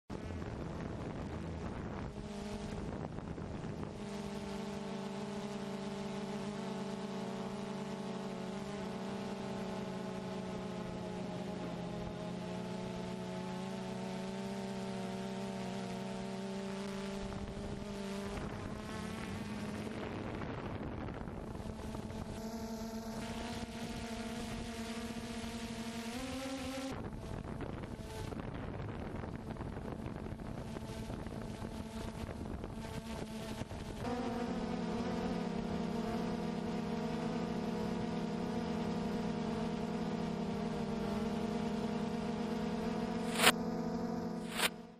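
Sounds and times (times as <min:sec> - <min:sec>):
drone propellers buzzing: 0:00.1 - 0:44.9
air noise: 0:44.4 - 0:44.7.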